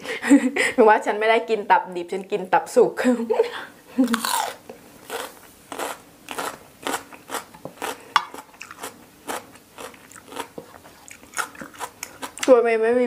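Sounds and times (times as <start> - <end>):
chewing food: 4.1 - 12.6.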